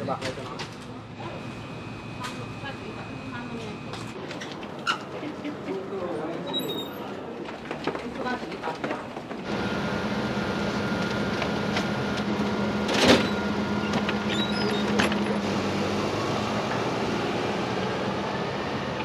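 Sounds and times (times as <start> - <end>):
machine humming and hissing: 9.5 - 19.0.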